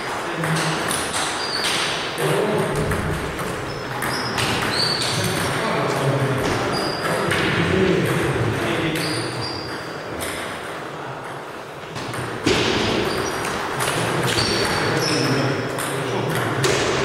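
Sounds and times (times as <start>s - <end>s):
sharp table tennis hit: 0.0s - 8.3s, 12.0s - 17.0s
table tennis balls clicking: 0.0s - 12.4s, 13.0s - 17.0s.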